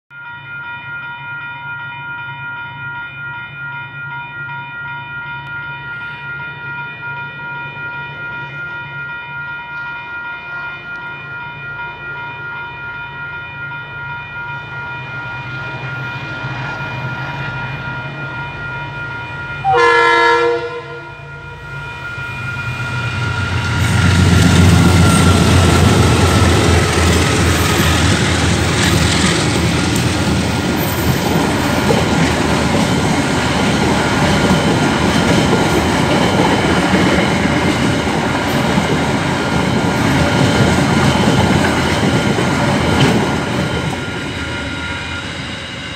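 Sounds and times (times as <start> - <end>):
level crossing warning bell: 0.1 - 45.9
train rumbling and clattering: 13.4 - 45.9
train horn blast: 19.6 - 21.6.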